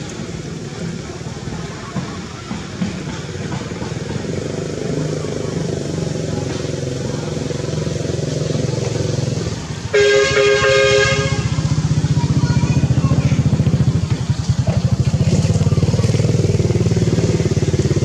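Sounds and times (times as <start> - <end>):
two-tone horn: 9.9 - 11.8
small engine running: 11.4 - 18.0.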